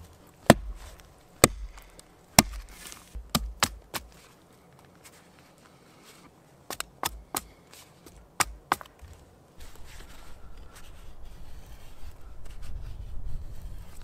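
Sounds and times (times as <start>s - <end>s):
knife shaving a stick: 0.0s - 4.4s, 6.0s - 14.0s
hatchet chopping green wood: 0.4s - 4.2s, 6.7s - 9.2s.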